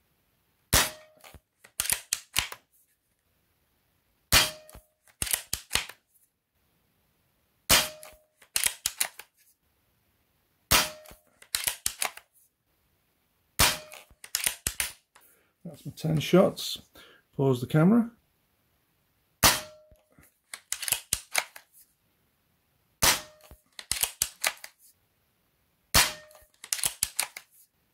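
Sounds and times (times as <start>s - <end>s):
air rifle shot crack: 0.7s - 1.1s, 4.3s - 4.8s, 7.7s - 8.2s, 10.7s - 11.2s, 13.6s - 14.0s, 19.4s - 19.8s, 23.0s - 23.4s, 26.0s - 26.4s
rifle bolt clicks: 1.2s - 2.6s, 4.7s - 6.0s, 7.9s - 9.3s, 11.0s - 12.2s, 13.8s - 15.0s, 20.5s - 21.6s, 23.3s - 24.7s, 26.2s - 27.4s.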